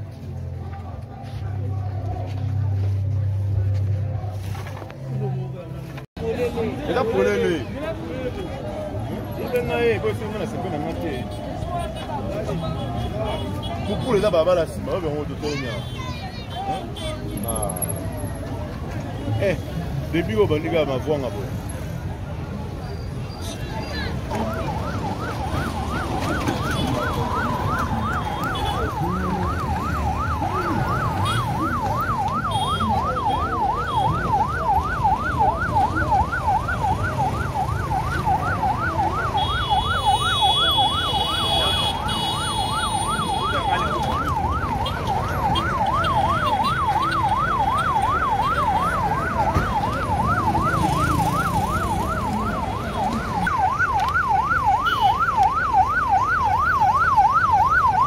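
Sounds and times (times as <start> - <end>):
vehicle noise: 0.0 - 58.0
ambulance siren yelping: 24.2 - 58.0.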